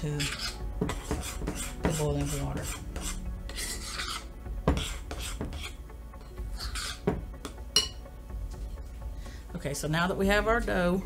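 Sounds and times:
spoon stirring sticky dough: 0.0s - 7.6s
spoon clinking against bowl: 7.8s - 8.0s.

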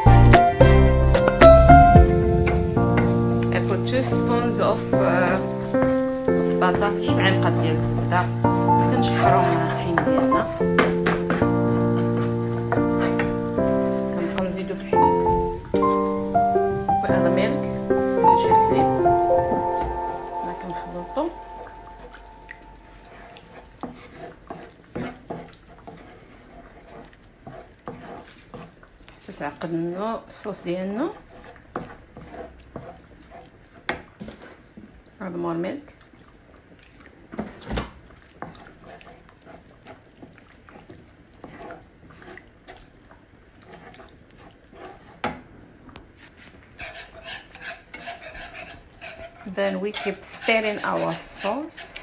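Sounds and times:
spoon knocking on a pan: 1.2s - 13.4s
spoon scraping a pan: 2.5s - 15.2s, 17.4s - 28.8s, 31.1s - 34.6s, 38.4s - 42.8s, 43.6s - 45.3s, 46.2s - 52.0s
spoon knocking against pan: 9.3s - 13.4s
simmering sauce popping: 35.8s - 51.0s.

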